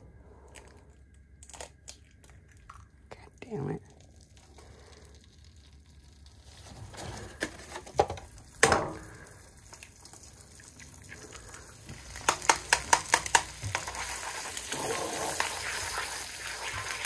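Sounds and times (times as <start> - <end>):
eggs sizzling in a frying pan: 4.0 - 17.0
egg cracking taps: 10.6 - 14.2.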